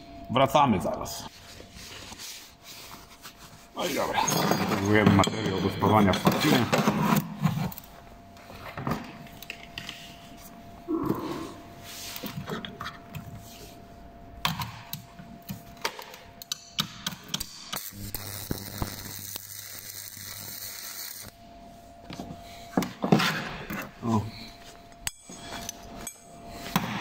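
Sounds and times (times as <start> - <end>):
steady low hum: 0.0 - 27.0
welding arc crackle: 16.8 - 21.4.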